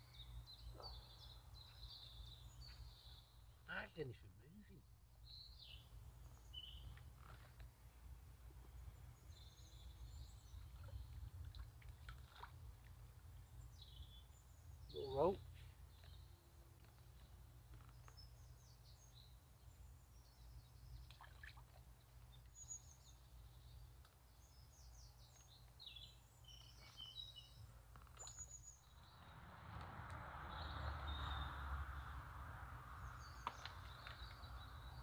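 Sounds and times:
small birds chirping: 0:00.0 - 0:29.4, 0:33.0 - 0:35.0.

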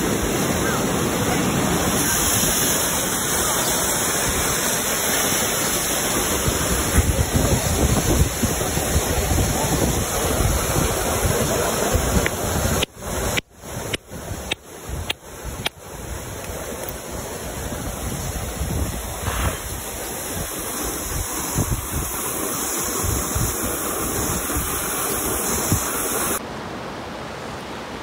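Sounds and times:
rushing water: 0:00.0 - 0:28.0
wind on microphone: 0:06.2 - 0:16.7, 0:17.4 - 0:26.4.

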